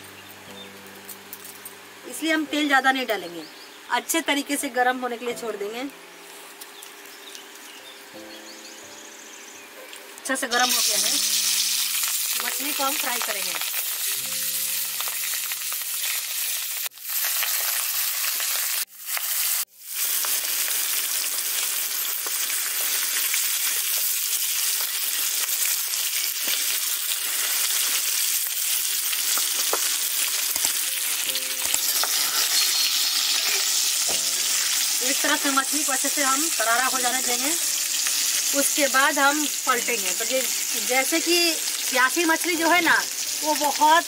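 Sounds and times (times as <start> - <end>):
fish sizzling in hot oil: 10.3 - 44.0.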